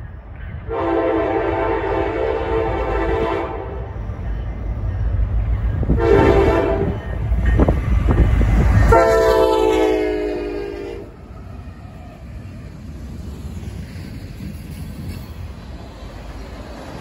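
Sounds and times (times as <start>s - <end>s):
locomotive engine and wheels rumbling: 0.0s - 17.0s
locomotive air horn blasts: 0.7s - 3.9s, 5.9s - 7.0s, 8.9s - 11.2s.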